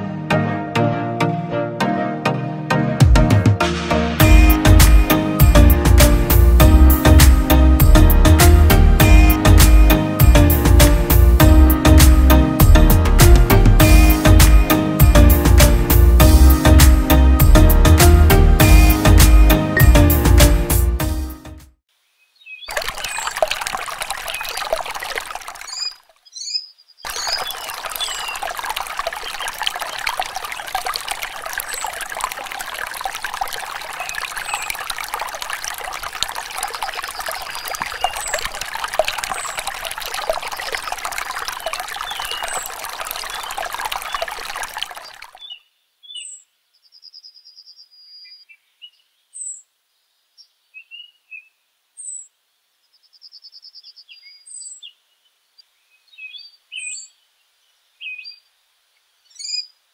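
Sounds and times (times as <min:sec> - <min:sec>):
water trickling into pond: 0:04.2 - 0:20.6, 0:22.4 - 0:45.7
birds chirping: 0:22.4 - 0:46.4.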